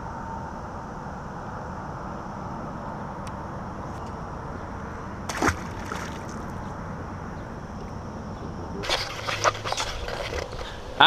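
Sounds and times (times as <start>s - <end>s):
wind and water hiss: 0.0s - 11.0s
fish splashing into water: 5.3s - 6.6s.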